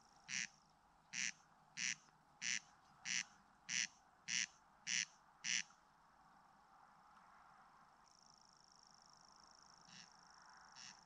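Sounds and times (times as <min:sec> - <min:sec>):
corncrake rasping call: 0:00.3 - 0:00.5, 0:01.2 - 0:05.7, 0:09.9 - 0:10.1, 0:10.8 - 0:11.0.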